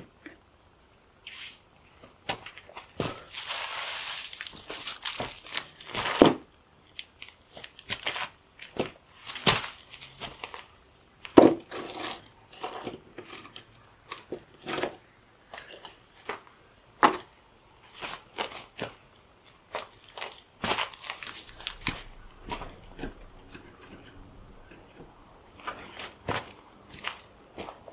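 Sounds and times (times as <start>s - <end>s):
footsteps crunching on leaf litter: 3.2s - 6.2s.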